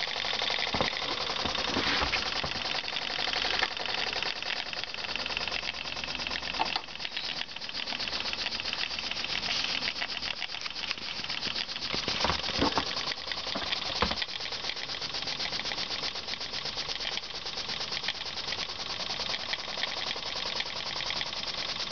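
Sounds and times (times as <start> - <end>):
steam engine exhaust clatter: 0.0 - 21.9.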